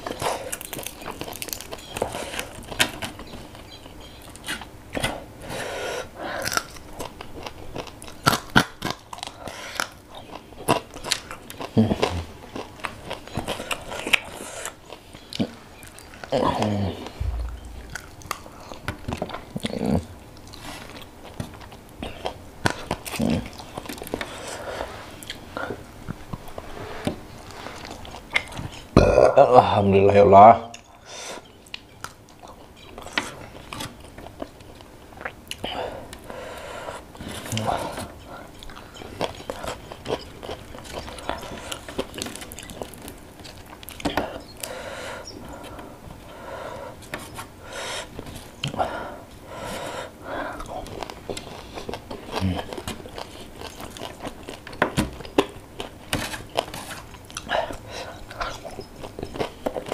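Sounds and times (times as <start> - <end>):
man chewing and lip-smacking: 6.4 - 24.6, 30.7 - 46.4, 47.0 - 59.9.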